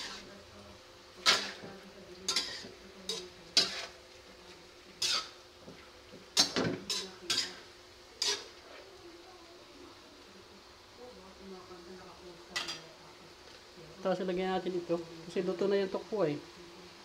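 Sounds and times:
metal spatula scraping a wok: 0.0s - 0.4s, 1.2s - 4.0s, 4.9s - 5.4s, 6.3s - 8.8s, 12.6s - 12.9s.

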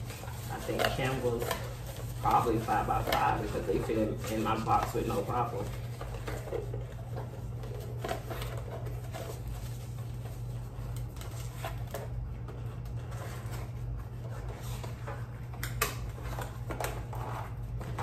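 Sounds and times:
tissue paper rustling: 0.0s - 11.9s.

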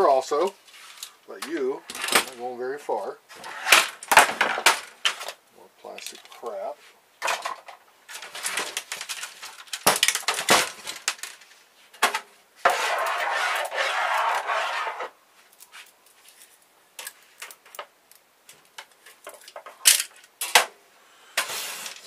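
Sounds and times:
plastic parts knocking on wood: 3.8s - 5.4s
steady scraping: 12.7s - 15.2s.

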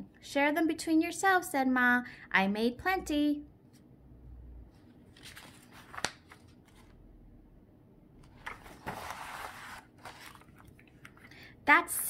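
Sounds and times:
paper page rustling: 4.8s - 7.0s, 8.3s - 11.3s.

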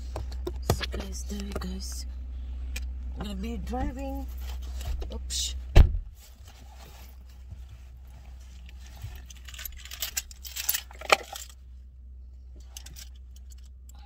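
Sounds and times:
small metal objects jingling: 9.2s - 11.6s.

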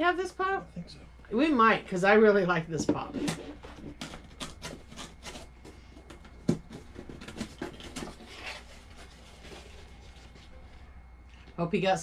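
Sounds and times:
cardboard rustling and scraping: 2.8s - 10.9s.

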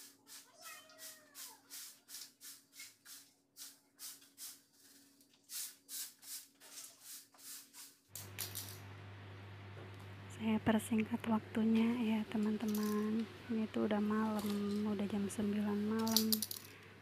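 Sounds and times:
broom sweeping: 0.0s - 8.8s
low steady hum: 8.2s - 17.0s.

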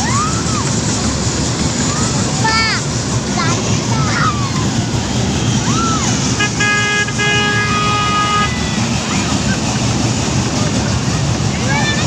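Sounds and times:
loud steady background noise: 0.0s - 12.0s
horn tooting: 6.3s - 8.9s.

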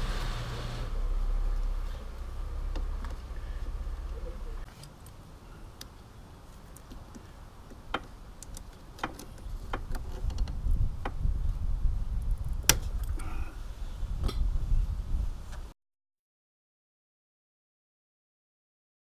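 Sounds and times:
low rumble: 0.0s - 4.7s.

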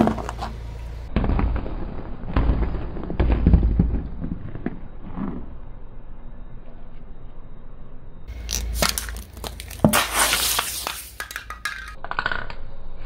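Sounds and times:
rolling car rumble: 0.0s - 9.9s
tyre crushing chalky lumps: 8.3s - 11.4s.

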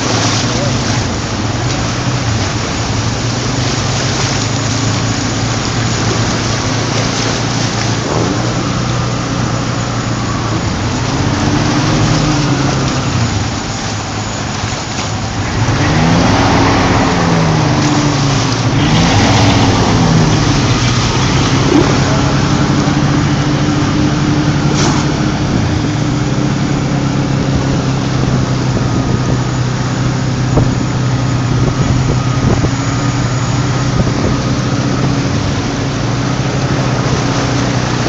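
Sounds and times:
vehicle engine running: 0.0s - 38.0s
water rushing and splashing: 0.0s - 38.0s.

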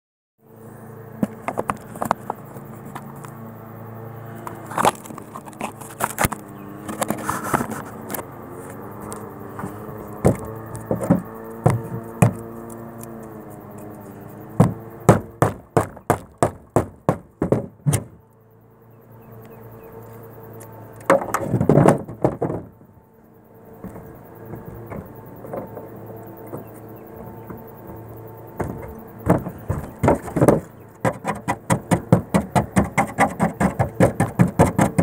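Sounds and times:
low hum: 0.4s - 34.4s
hammer knocking on metal roof: 14.6s - 18.1s, 28.6s - 35.0s.

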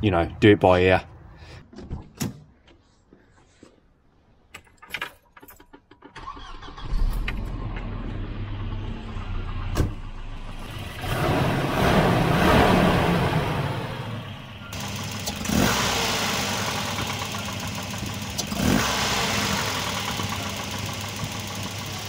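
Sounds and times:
car engine starting and idling: 5.7s - 22.0s.

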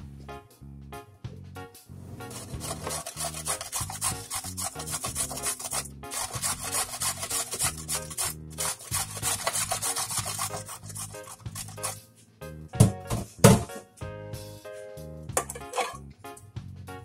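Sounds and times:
background music low notes: 0.0s - 17.0s
carrot grated on metal grater: 2.3s - 12.0s.

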